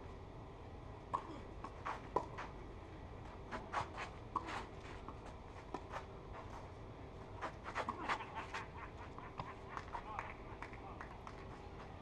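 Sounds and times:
shoes sliding on clay: 1.7 - 2.6, 3.2 - 8.8.

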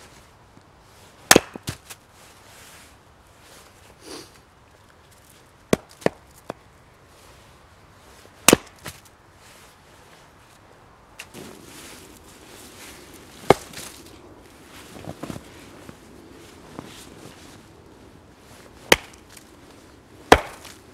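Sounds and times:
hatchet chopping wood: 1.3 - 1.8, 5.7 - 6.2, 8.5 - 9.0, 13.5 - 13.9, 18.9 - 19.3, 20.3 - 20.8.

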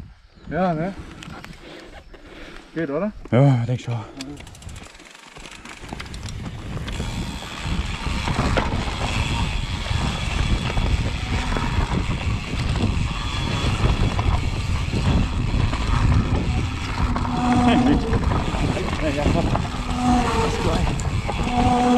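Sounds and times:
wind buffeting camera: 0.0 - 2.2, 3.9 - 21.9
tyres rolling over dirt: 4.4 - 21.9.

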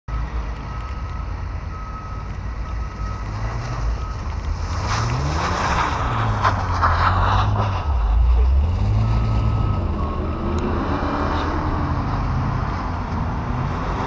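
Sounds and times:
car engine revving while sliding: 3.2 - 14.0
low engine drone: 3.8 - 14.0.

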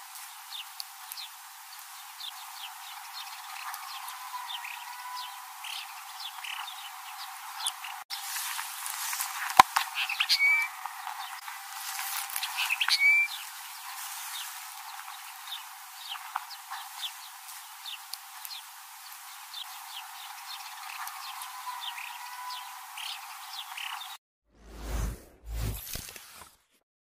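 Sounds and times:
finch chirping and twittering: 2.2 - 8.0, 9.9 - 11.4, 12.3 - 13.4, 19.5 - 24.2.

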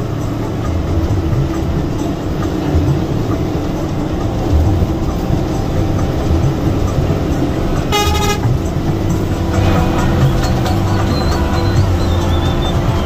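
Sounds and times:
bus running noise: 0.0 - 13.0
short horn blast: 7.9 - 8.7.

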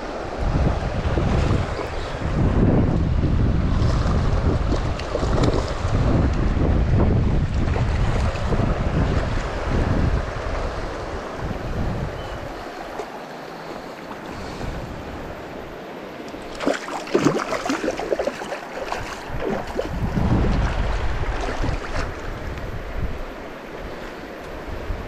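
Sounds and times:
wind buffeting microphone: 0.0 - 13.0, 16.4 - 25.0
river water rushing: 7.6 - 25.0
water splashing: 16.2 - 22.6.

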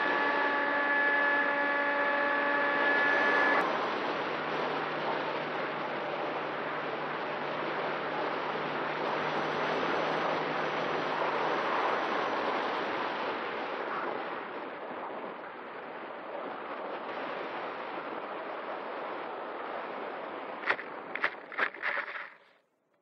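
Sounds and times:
faint hum: 0.0 - 13.1
rushing air and propeller noise: 0.0 - 14.8, 20.3 - 22.4.

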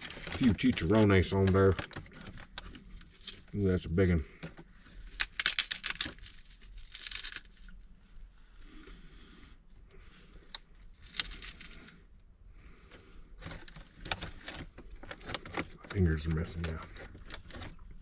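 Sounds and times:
pork rinds crunching: 5.0 - 7.9, 10.4 - 12.0.

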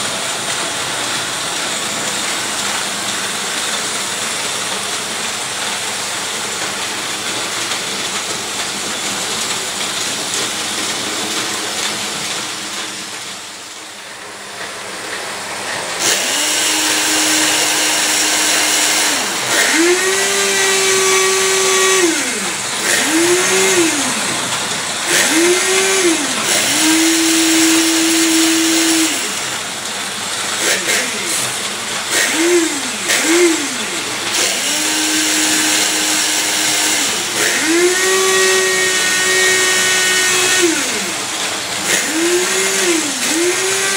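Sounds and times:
small electric motor whining: 16.0 - 29.6, 30.6 - 43.9.

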